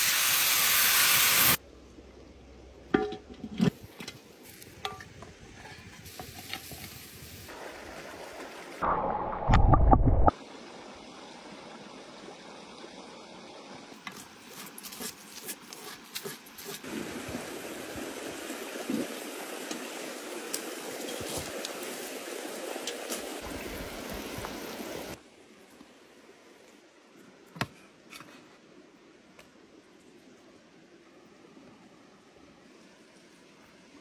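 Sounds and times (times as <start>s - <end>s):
metal lid clanking: 2.9s - 3.7s.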